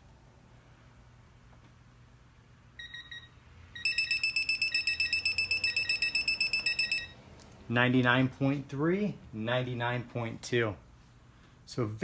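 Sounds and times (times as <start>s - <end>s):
high-pitched wrench beeping: 3.8s - 7.2s.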